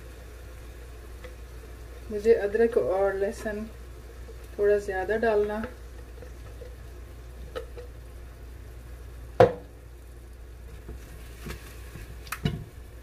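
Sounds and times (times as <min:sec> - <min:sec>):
steady low hum: 0:00.0 - 0:13.0
spatula tapping and scraping pot: 0:05.4 - 0:06.8, 0:07.5 - 0:08.0.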